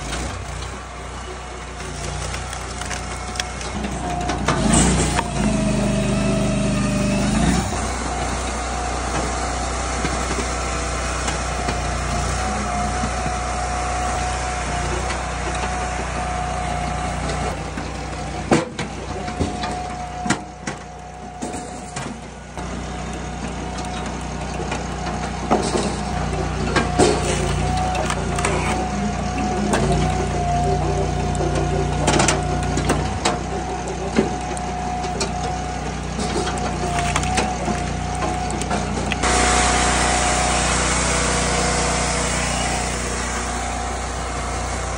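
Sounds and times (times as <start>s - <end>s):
engine and hydraulics whining: 0.0s - 44.9s.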